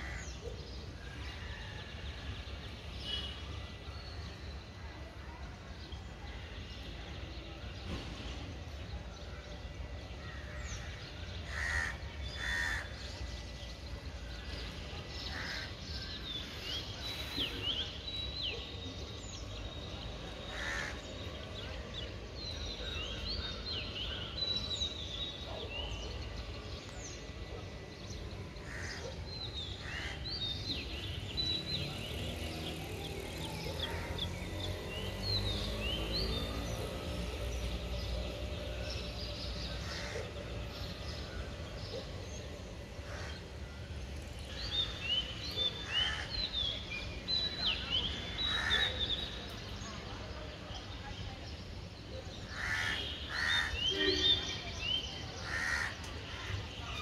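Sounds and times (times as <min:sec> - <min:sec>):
harsh bird calls: 0:55.4 - 0:57.0.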